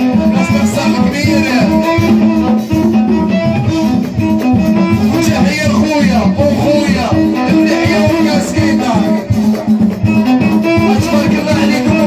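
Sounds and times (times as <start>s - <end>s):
electric keyboard melody: 0.0s - 12.0s
steady percussion: 0.0s - 12.0s
men singing: 0.1s - 1.8s, 5.1s - 9.3s, 10.6s - 12.0s.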